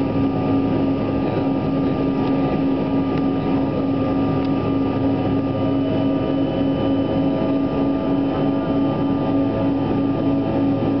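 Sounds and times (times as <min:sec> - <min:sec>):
jet engines droning: 0:00.0 - 0:11.0
steady low hum: 0:00.0 - 0:11.0.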